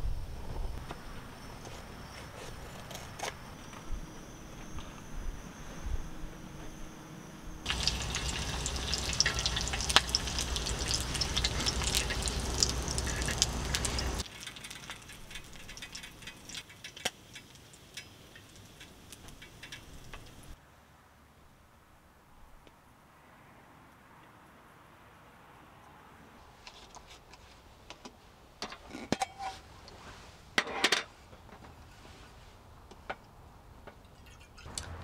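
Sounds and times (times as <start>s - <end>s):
sausage and eggs sizzling: 7.6s - 20.6s.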